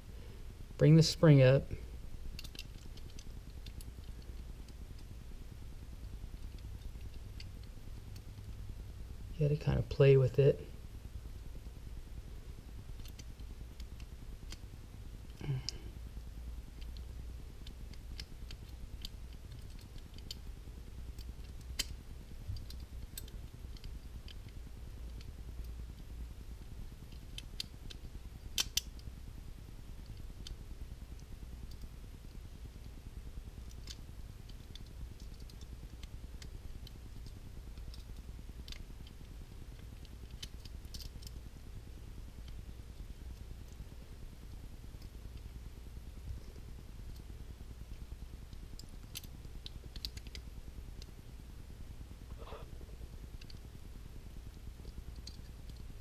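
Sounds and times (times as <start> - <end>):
faint low hum: 0.0 - 56.0
metallic clicks of revolver parts: 2.2 - 5.1, 6.0 - 8.6, 12.9 - 15.9, 16.7 - 26.1, 27.0 - 29.1, 29.9 - 30.6, 31.2 - 32.8, 33.6 - 41.6, 47.9 - 51.2, 54.5 - 56.0.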